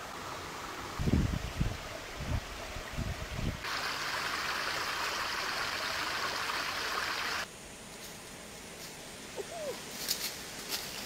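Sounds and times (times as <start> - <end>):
shallow stream over stones: 1.6 - 7.5.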